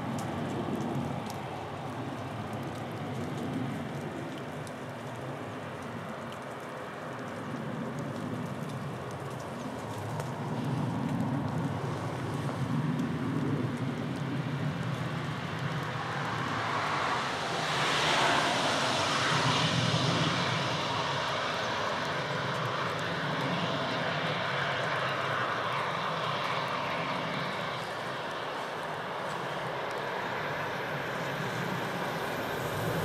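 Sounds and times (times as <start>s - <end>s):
low hum: 30.8s - 33.0s
train wheel and air rush: 31.6s - 33.0s.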